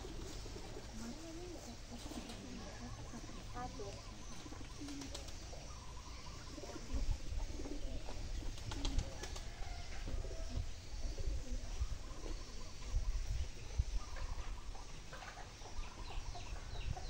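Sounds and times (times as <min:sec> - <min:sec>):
birds calling: 0:00.0 - 0:17.0.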